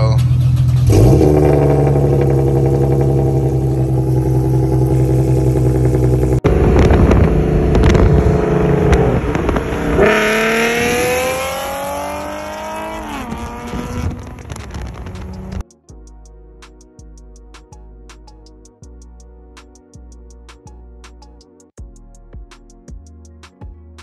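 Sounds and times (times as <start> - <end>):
car engine through exhaust: 0.0 - 15.6.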